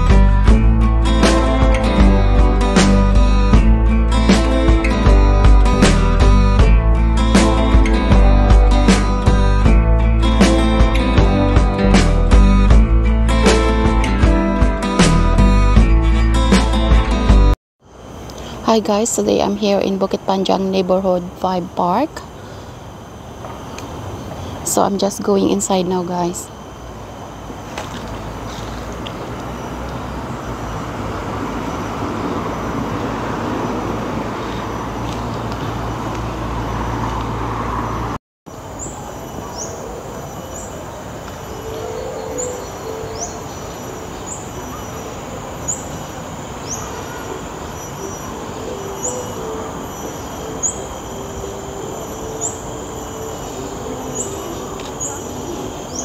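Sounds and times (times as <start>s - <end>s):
rumble of passing vehicles: 0.0s - 56.0s
birds calling: 27.6s - 38.1s, 38.8s - 56.0s.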